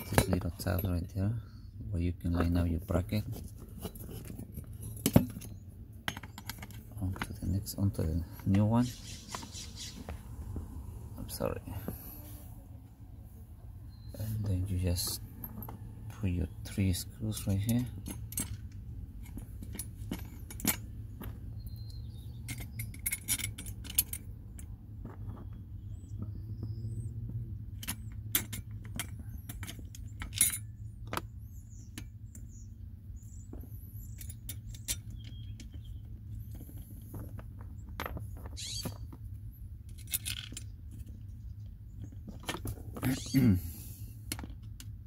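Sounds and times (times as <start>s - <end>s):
low steady rumble: 0.0s - 45.0s
small metallic clicks and clinks: 17.4s - 25.4s, 27.7s - 32.6s, 33.6s - 38.6s, 39.8s - 43.4s.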